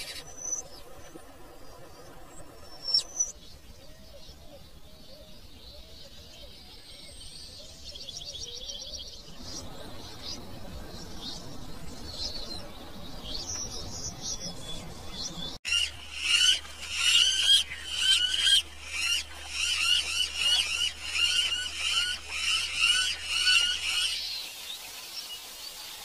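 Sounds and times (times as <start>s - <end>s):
toucan yelping call: 15.7s - 24.4s.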